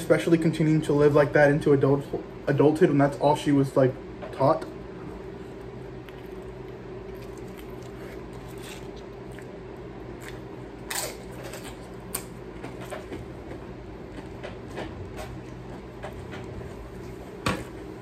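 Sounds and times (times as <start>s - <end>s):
low room hum: 0.0s - 18.0s
person chewing food: 5.1s - 17.9s.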